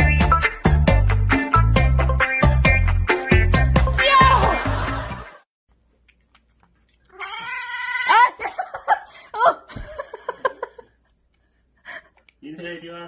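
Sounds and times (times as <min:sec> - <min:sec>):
cat yowling and meowing: 0:07.1 - 0:08.4.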